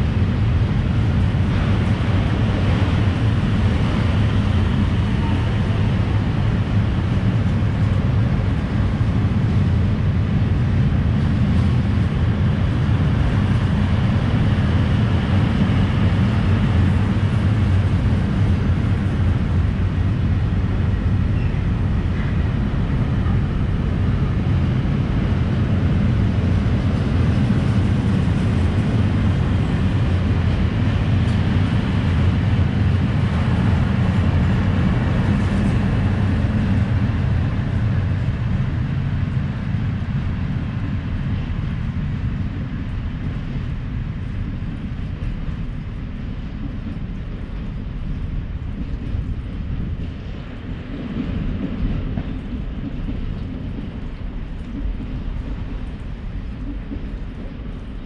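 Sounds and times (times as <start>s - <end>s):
freight train wheels rumbling: 0.0s - 58.0s.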